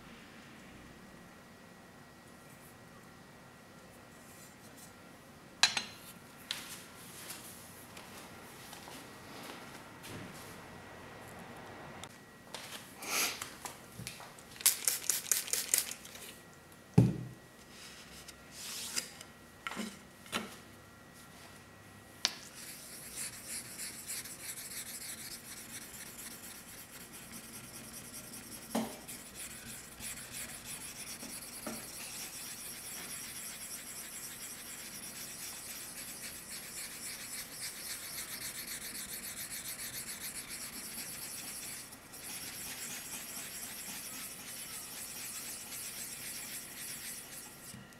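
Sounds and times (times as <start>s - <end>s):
stone scrubbing on whetstone: 22.6s - 47.7s.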